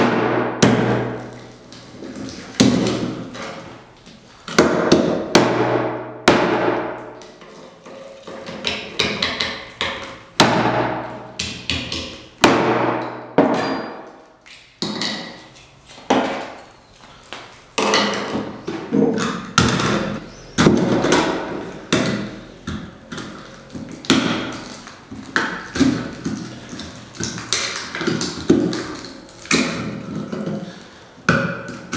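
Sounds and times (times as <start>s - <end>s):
knife chopping plastic on stone: 0.0s - 3.7s, 8.3s - 14.2s, 17.3s - 31.9s.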